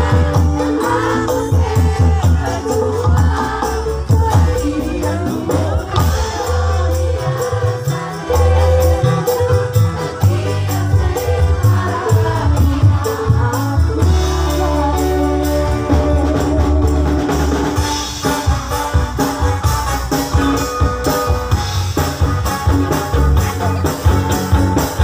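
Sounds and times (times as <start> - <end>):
woman singing: 0.0 - 7.4, 8.2 - 17.4
bass guitar: 0.0 - 25.0
drums beat: 0.0 - 25.0
electric guitars: 0.0 - 25.0.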